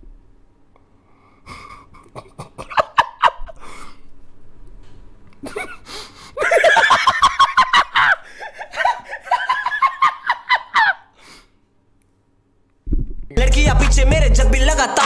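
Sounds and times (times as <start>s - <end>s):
man laughing hard: 1.5s - 3.8s, 5.4s - 11.1s.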